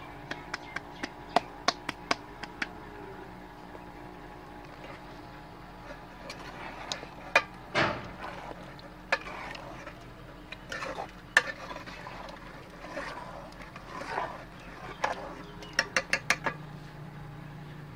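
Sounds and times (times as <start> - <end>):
ladle scraping pot: 4.5 - 16.7.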